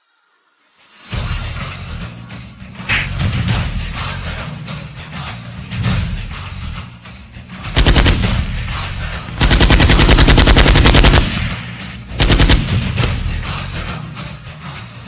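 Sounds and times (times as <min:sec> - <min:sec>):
automatic rifle fire: 0:07.8 - 0:08.6, 0:09.4 - 0:11.6, 0:12.2 - 0:13.1.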